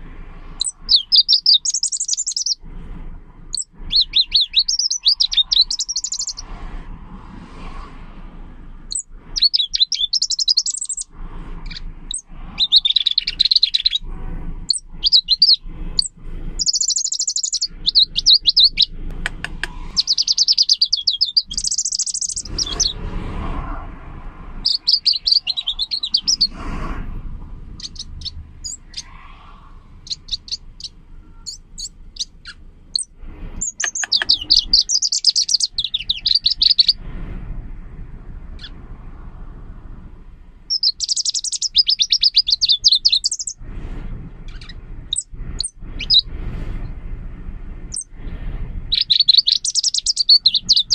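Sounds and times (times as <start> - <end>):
faint rumble: 0.0 - 50.9
bird singing trilled phrases: 0.6 - 2.6, 3.5 - 6.5, 8.9 - 14.1, 14.7 - 19.0, 19.7 - 23.0, 24.6 - 26.6, 27.8 - 37.0, 38.6 - 38.8, 40.7 - 43.6, 44.5 - 46.2, 48.9 - 50.9.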